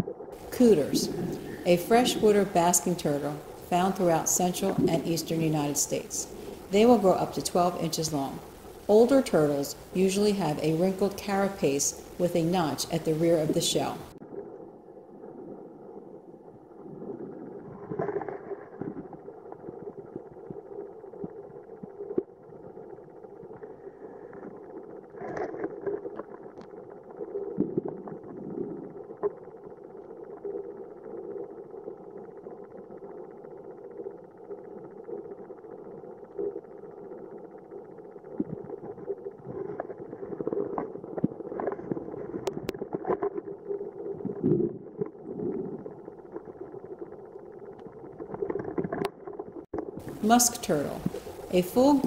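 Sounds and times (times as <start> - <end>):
underwater water rush: 0.0 - 7.6, 51.0 - 51.5
muffled underwater rumble: 0.0 - 52.0
clicks and crackles: 24.3 - 28.4, 38.4 - 50.1.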